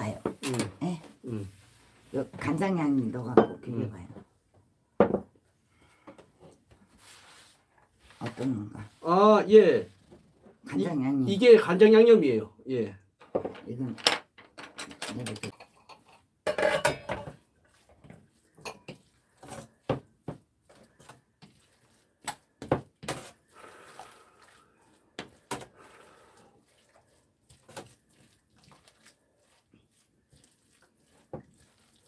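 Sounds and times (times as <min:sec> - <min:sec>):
tableware clatter: 0:13.3 - 0:17.4
metal spoon scraping ceramic bowl: 0:15.4 - 0:17.4.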